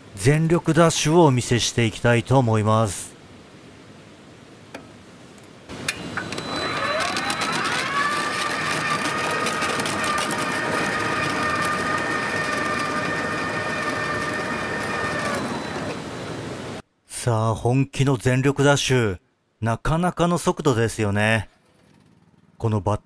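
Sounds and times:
electric motor whine: 5.8 - 16.8
rapid ticking: 6.7 - 15.8.

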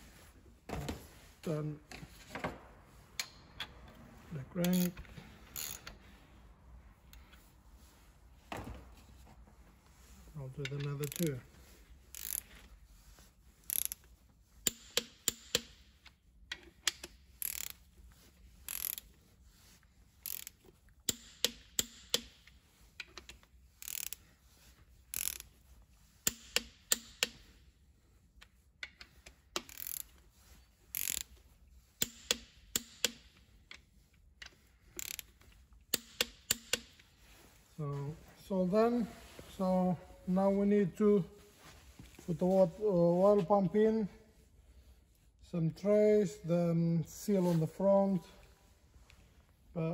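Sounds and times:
torque wrench clicking: 5.6 - 5.9, 10.8 - 11.3, 12.1 - 12.5, 13.7 - 14.0, 14.6 - 15.8, 16.5 - 17.8, 18.7 - 19.0, 20.2 - 22.4, 23.0 - 24.2, 25.1 - 25.5, 28.8 - 30.1, 30.9 - 31.3, 32.0 - 33.3, 34.4 - 35.3, 35.9 - 37.0.

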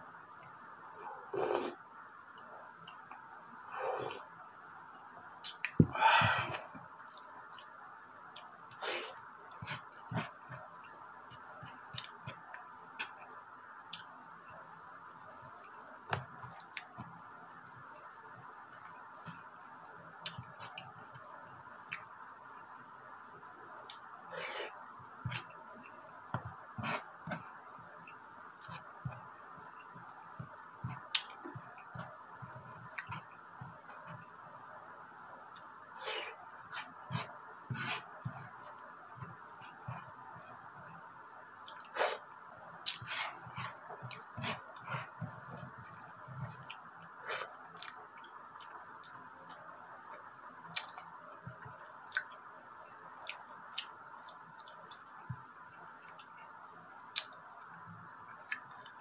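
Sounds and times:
mouth clicks and smacks chewing: 5.4 - 5.8, 6.6 - 7.8, 9.4 - 14.2, 15.2 - 19.6, 20.2 - 22.5, 27.3 - 32.2, 32.8 - 34.4, 41.6 - 41.9, 42.8 - 43.1, 43.7 - 49.6, 50.6 - 52.5, 53.2 - 55.4, 56.0 - 56.4, 57.1 - 59.0
fingers squishing rice and meat: 15.2 - 22.5, 23.8 - 34.4, 50.6 - 52.5
wet chewing smacks: 45.6 - 49.2, 50.7 - 51.0.

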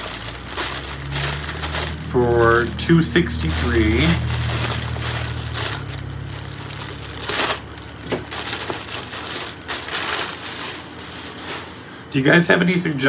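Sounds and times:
plastic bag crinkling: 0.0 - 12.0.

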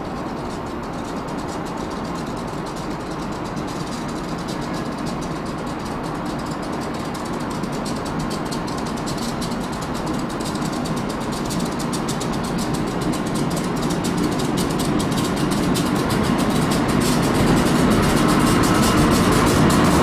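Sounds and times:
electric locomotive rumble and fan: 0.0 - 20.0.

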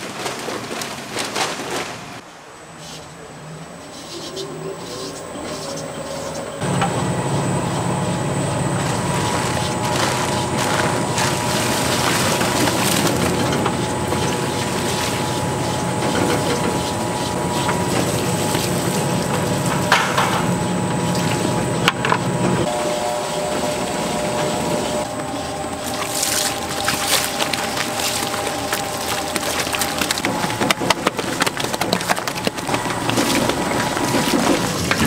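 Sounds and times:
mixer motor humming: 4.8 - 35.0
paddle churning wet mash: 6.6 - 35.0.

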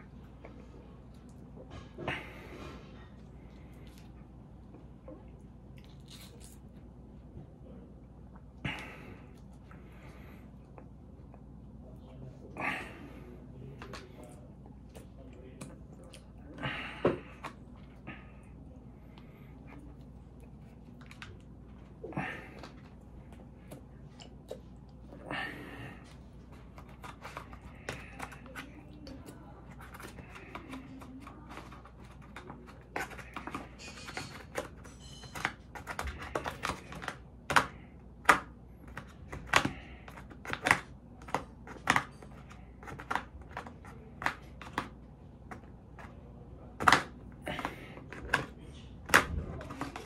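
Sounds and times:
chewing and mouth smacks: 3.2 - 6.8, 19.8 - 25.1.

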